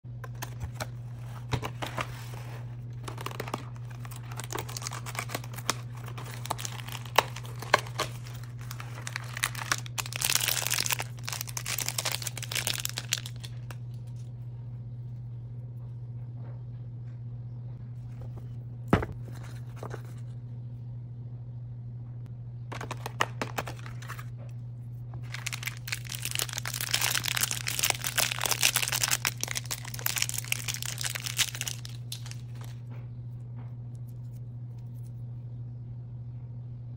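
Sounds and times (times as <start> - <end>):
low hum: 0.1 - 36.9
foil wrapper crinkling and tearing: 0.2 - 14.2, 22.7 - 24.3, 25.2 - 32.8.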